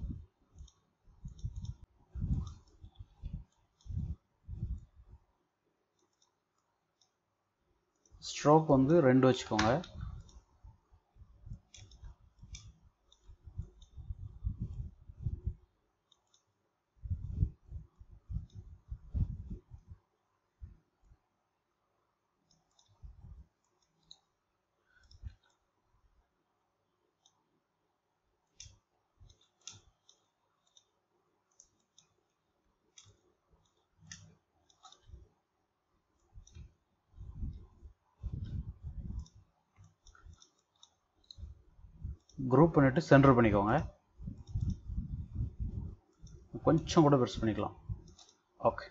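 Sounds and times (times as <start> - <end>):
computer mouse clicking: 0.0 - 5.0, 5.9 - 7.2, 7.9 - 8.2, 8.9 - 10.8, 11.4 - 19.9, 22.4 - 25.7, 27.1 - 27.4, 28.4 - 35.4, 36.1 - 48.5
dull low thumps: 13.5 - 15.6, 17.0 - 20.0, 36.4 - 39.3, 44.2 - 46.0.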